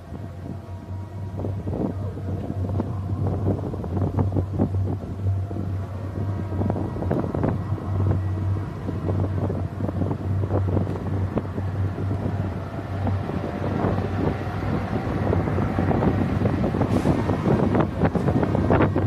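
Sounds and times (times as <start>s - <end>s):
low engine-like hum: 0.0s - 19.0s
wind buffeting microphone: 0.0s - 19.0s.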